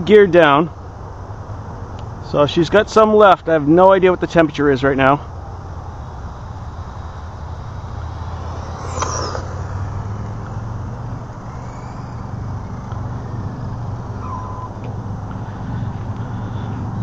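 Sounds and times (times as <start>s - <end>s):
low rumble: 5.3s - 17.0s
toy car motor whine: 8.2s - 14.8s.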